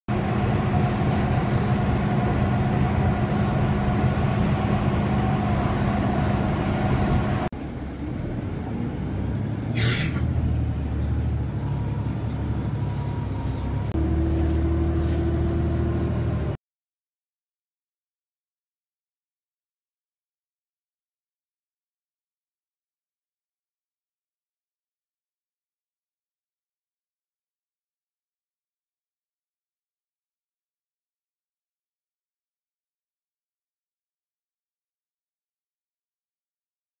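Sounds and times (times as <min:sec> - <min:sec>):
transit vehicle cabin drone: 0:00.1 - 0:16.6
short hiss: 0:09.7 - 0:10.2.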